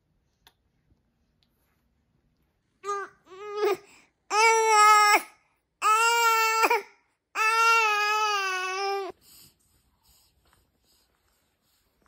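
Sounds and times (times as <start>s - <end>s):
infant crying: 2.8s - 9.2s.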